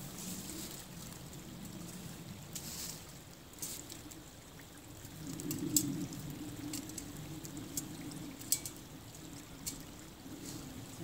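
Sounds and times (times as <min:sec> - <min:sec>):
creek trickling: 0:00.0 - 0:11.0
dry grass burning crackles: 0:00.0 - 0:11.0
grass rustling in hand: 0:02.5 - 0:04.1, 0:09.5 - 0:11.0.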